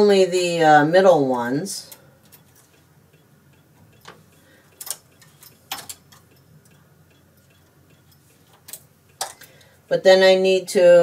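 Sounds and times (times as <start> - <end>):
knitting machine metal clicks: 2.3 - 9.6.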